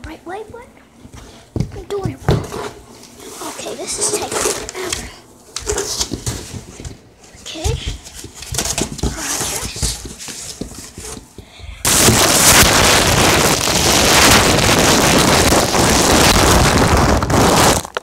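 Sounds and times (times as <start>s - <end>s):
loud harsh rushing noise: 11.8s - 17.8s.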